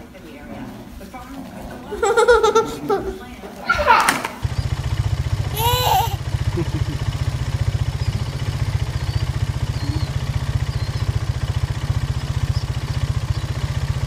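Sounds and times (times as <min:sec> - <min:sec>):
small engine idling: 0:03.8 - 0:14.0
child vocal sound: 0:05.6 - 0:06.2.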